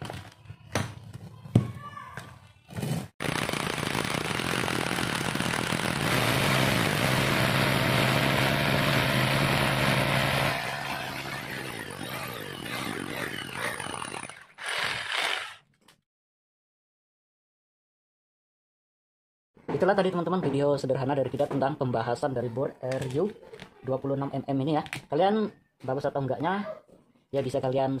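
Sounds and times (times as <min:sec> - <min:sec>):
rotary hammer drilling into concrete: 0:03.2 - 0:15.7.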